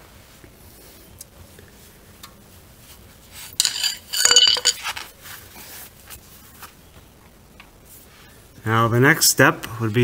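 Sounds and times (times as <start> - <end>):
metal tools clinking: 3.6 - 5.0.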